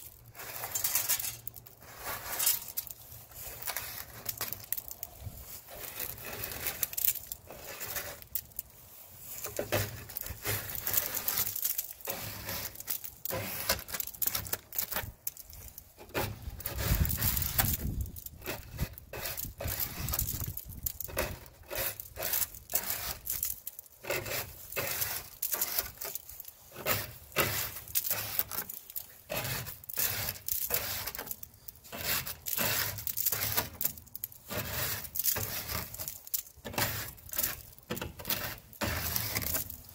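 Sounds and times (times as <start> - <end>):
plastic scraper scraping shells: 0.0 - 5.0, 5.6 - 8.6, 9.4 - 39.9
shells crackling: 0.1 - 1.8, 2.4 - 8.8, 9.4 - 16.0, 24.7 - 34.5, 35.1 - 37.8.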